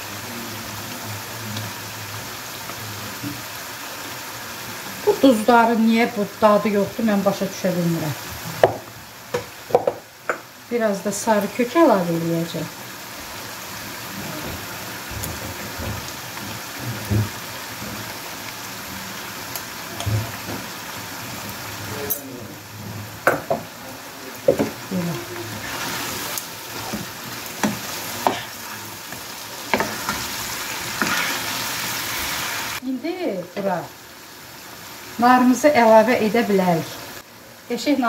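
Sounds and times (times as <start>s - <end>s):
chicken and onions sizzling in a pan: 0.0s - 38.0s
wooden spoon knocking and scraping a pan: 8.6s - 10.5s, 14.4s - 18.1s, 23.2s - 23.7s, 24.4s - 24.8s, 26.7s - 31.4s.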